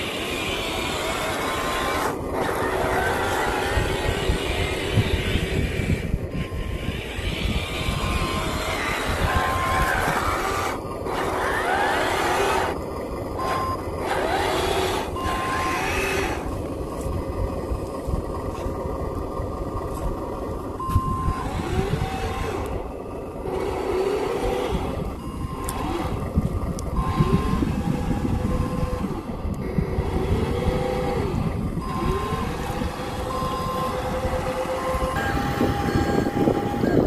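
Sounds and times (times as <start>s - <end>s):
simulated engine revving: 0.0s - 12.8s, 13.4s - 16.7s, 20.6s - 37.0s
toy truck rumbling over dirt: 0.0s - 37.0s
reversing beeps: 13.4s - 13.9s, 20.8s - 22.3s, 25.2s - 26.1s, 31.8s - 37.0s.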